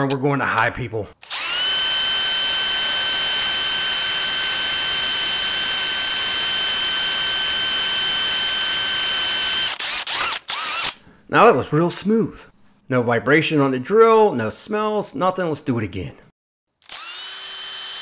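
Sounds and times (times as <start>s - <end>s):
power drill drilling through steel: 1.2s - 11.0s, 16.8s - 18.0s.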